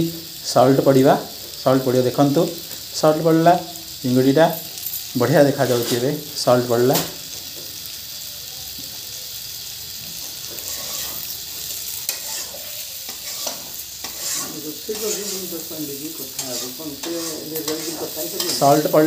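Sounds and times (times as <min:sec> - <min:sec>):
prawns sizzling in oil: 0:00.0 - 0:19.0
spatula scraping a metal pan: 0:05.6 - 0:06.1, 0:10.4 - 0:19.0.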